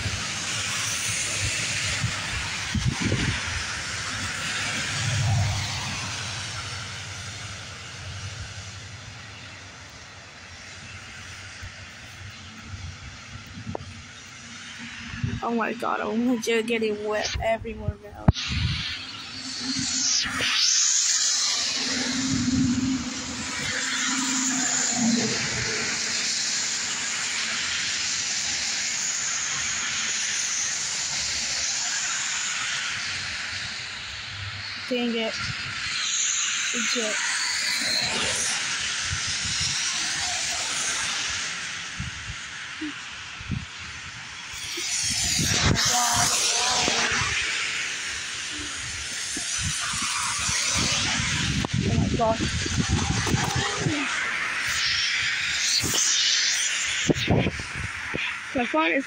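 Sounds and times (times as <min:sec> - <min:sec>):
rain on pavement and grass: 0:00.0 - 0:15.2, 0:25.6 - 0:37.6
distant freight train rumbling: 0:00.0 - 0:20.5, 0:21.3 - 0:59.0.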